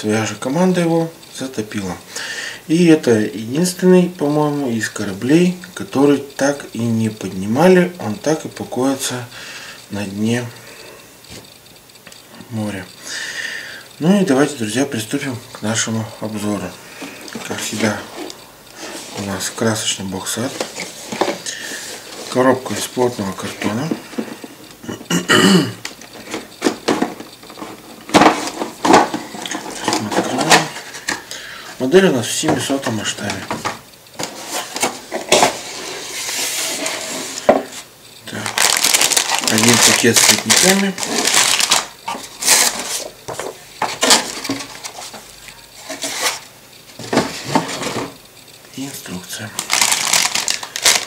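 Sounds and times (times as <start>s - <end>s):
cardboard and plastic rustling: 16.3s - 24.6s, 26.0s - 31.3s, 32.4s - 48.2s, 49.4s - 51.0s.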